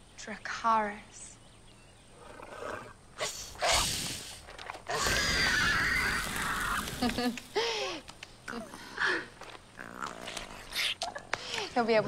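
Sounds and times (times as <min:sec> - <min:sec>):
hissing rushing fire breath: 0:03.2 - 0:04.5
baby dragon screeching: 0:04.9 - 0:07.0.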